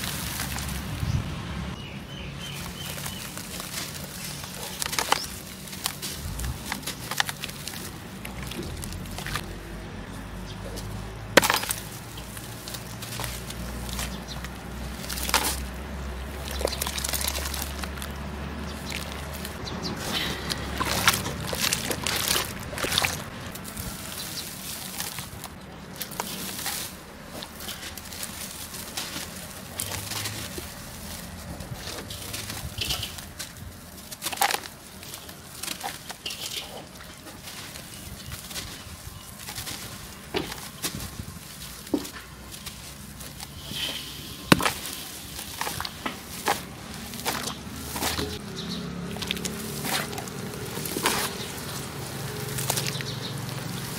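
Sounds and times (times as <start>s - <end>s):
sand-cement chunks crunching: 0.0s - 53.9s
wet squelches and splashes: 11.4s - 41.9s, 42.5s - 53.9s.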